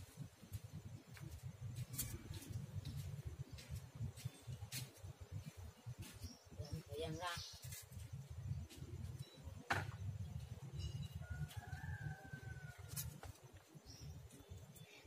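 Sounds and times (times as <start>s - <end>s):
distant rooster crowing: 11.0s - 13.3s.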